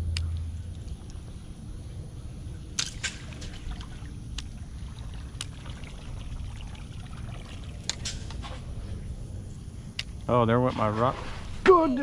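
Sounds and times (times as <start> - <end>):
low rumble: 0.0 - 11.6
water sloshing and trickling: 2.6 - 9.4, 10.2 - 12.0.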